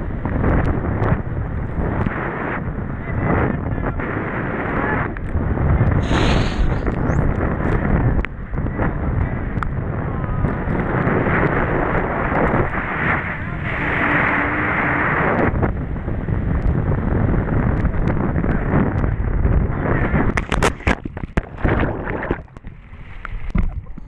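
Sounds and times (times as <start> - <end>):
wind buffeting microphone: 0.0 - 24.0
water rushing and spraying: 6.0 - 7.1.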